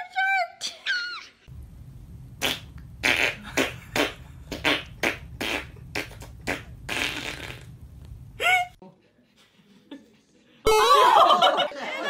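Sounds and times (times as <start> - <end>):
low steady hum: 1.5 - 8.8.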